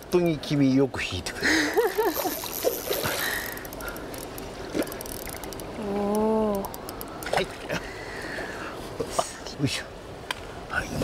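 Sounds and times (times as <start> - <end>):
fishing reel ticking: 2.2 - 7.3
person humming: 5.8 - 6.7.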